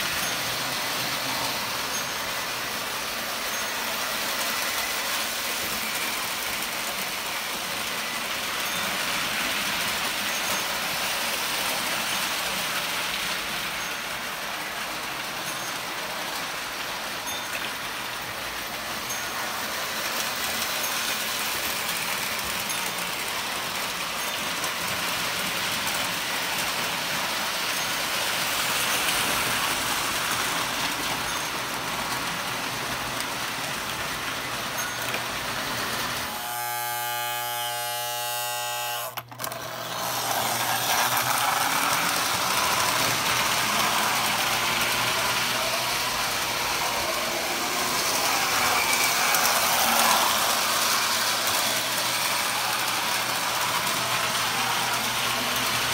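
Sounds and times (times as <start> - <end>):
toy train motors rumbling: 0.0 - 55.9
buzzing tone: 36.3 - 39.2.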